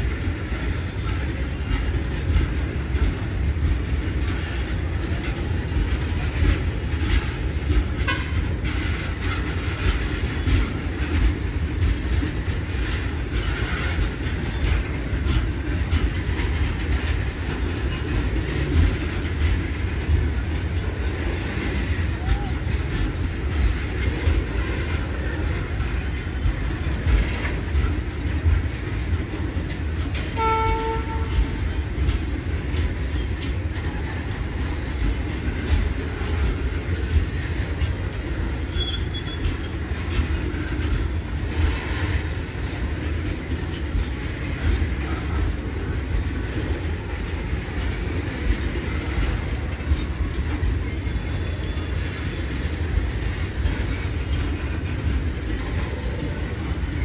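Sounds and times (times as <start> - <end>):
train rumbling past: 0.0 - 57.0
wheels clattering over rail joints: 0.0 - 57.0
train horn blast: 8.0 - 8.4, 30.4 - 31.6.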